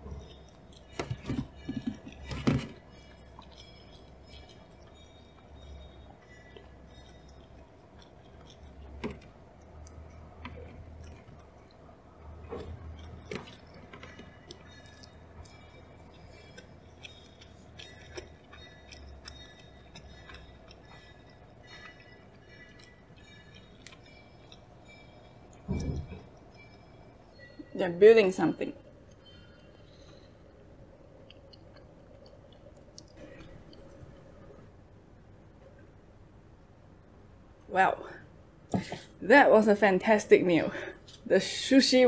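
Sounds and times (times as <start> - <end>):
faint clicks and knocks: 0.0 - 27.7
steady low hum: 0.0 - 42.0.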